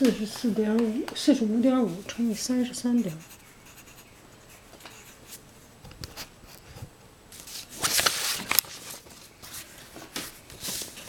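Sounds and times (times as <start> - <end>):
pen scratching on paper: 1.6 - 5.4
paper rustling: 7.4 - 11.0.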